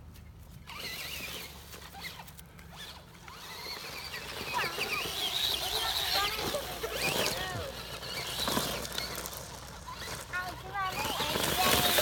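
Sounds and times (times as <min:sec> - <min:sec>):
rc truck motor whining: 0:00.6 - 0:12.0.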